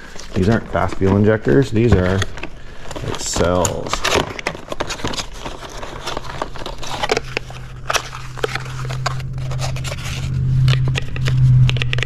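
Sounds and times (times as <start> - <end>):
packaging clicking and crackling: 0.0 - 12.0
low hum: 5.9 - 12.0.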